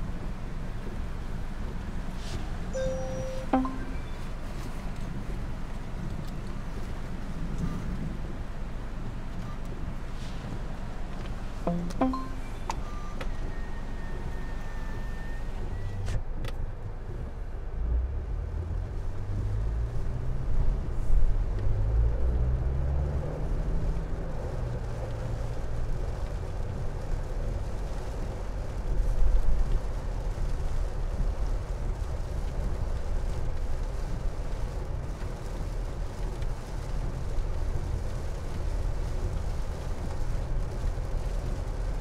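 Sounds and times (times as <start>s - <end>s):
tyres on wet road: 0.0s - 42.0s
car engine accelerating: 17.6s - 25.5s.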